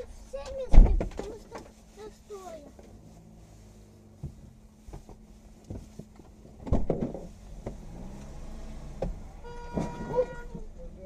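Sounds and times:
car engine idling: 0:07.2 - 0:11.0.

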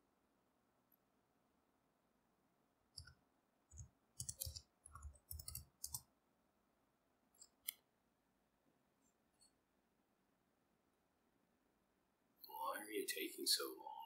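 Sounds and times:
faint keyboard keystrokes: 0:03.0 - 0:06.1.

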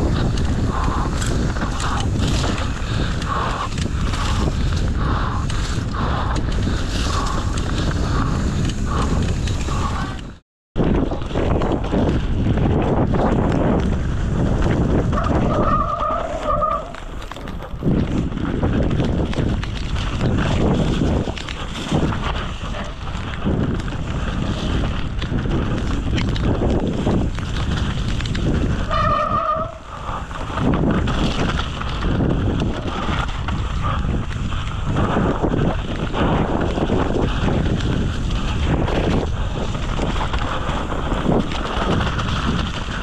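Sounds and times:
bike tyres skidding and rattling: 0:00.0 - 0:43.0
wind rushing over microphone: 0:00.0 - 0:43.0
steady squeal: 0:15.2 - 0:17.5, 0:28.9 - 0:29.9.

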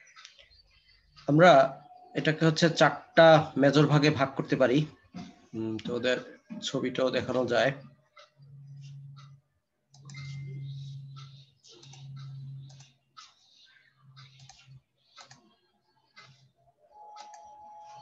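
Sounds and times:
keyboard and mouse clicking: 0:08.2 - 0:16.5, 0:17.1 - 0:18.0.

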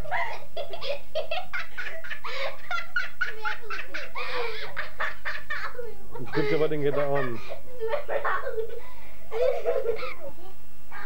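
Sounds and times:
girl laughing hard: 0:00.0 - 0:11.0.

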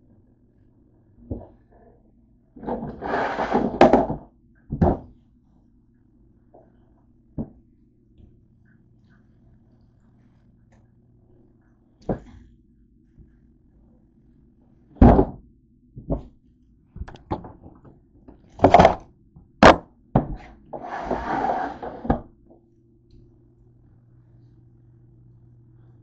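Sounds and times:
faint low hum: 0:00.0 - 0:26.0
knocks and thuds in cabinet: 0:03.8 - 0:05.1, 0:15.0 - 0:15.4.

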